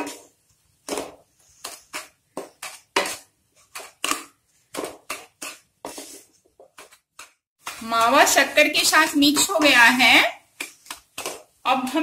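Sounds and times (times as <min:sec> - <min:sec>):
wooden spatula scraping and stirring: 0:00.0 - 0:12.0.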